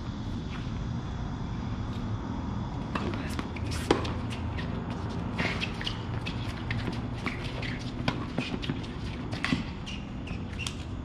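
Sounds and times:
racket hitting tennis ball: 2.9 - 9.8
shoe scuffs: 3.0 - 10.9.

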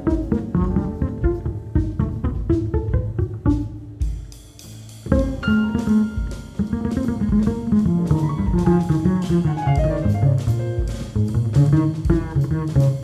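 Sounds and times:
acoustic piano: 0.0 - 4.3, 5.0 - 13.0
drum kit with cymbals: 0.0 - 13.0
upright bass walking notes: 0.0 - 13.0.

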